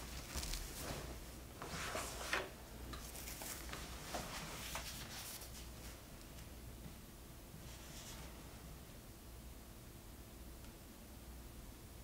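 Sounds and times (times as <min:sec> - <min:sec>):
clothing rustling: 0:00.0 - 0:06.1.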